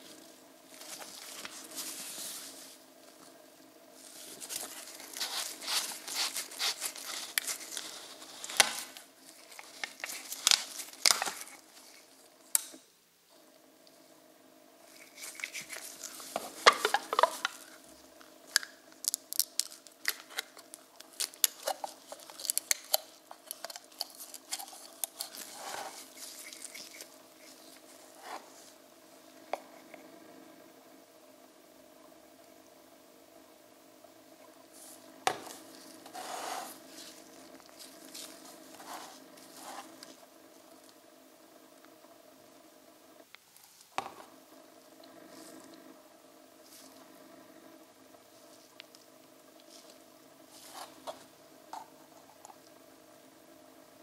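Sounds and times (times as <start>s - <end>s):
crinkling and rustling: 0.0s - 3.4s, 4.0s - 12.3s, 14.9s - 28.8s, 34.7s - 41.0s
low electrical hum: 0.0s - 54.0s.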